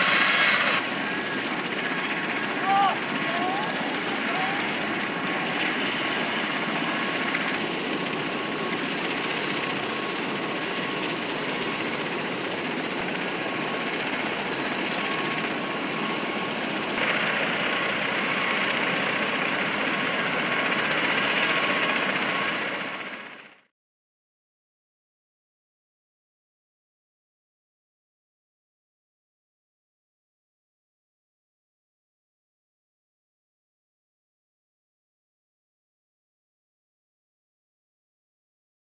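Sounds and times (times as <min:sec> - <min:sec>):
steady high whine: 0:00.0 - 0:23.6
aircraft engines running: 0:00.0 - 0:23.7.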